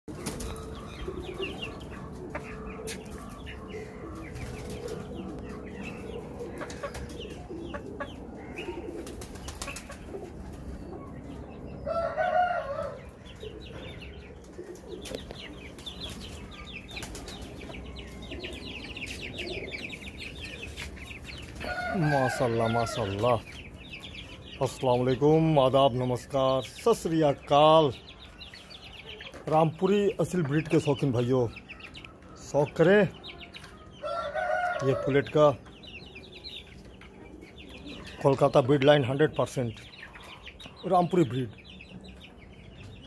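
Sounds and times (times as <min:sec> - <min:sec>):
chicken flapping wings: 0:08.9 - 0:10.3.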